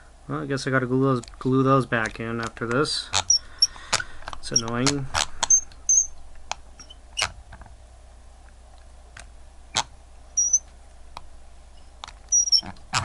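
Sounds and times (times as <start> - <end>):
metal on metal squeak: 4.4 - 4.7, 5.4 - 6.2, 9.8 - 10.7, 11.7 - 13.0.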